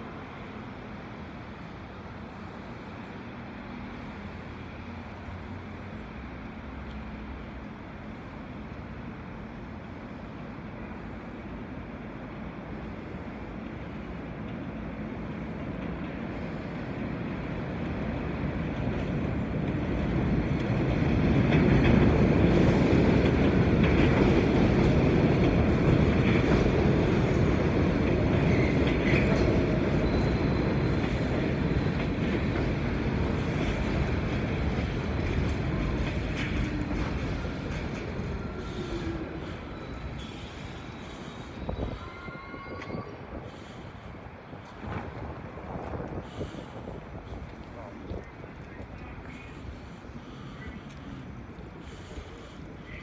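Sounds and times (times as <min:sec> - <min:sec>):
subway train rumbling past: 0:00.0 - 0:53.0
train wheel squeals: 0:25.7 - 0:33.8, 0:35.3 - 0:44.1.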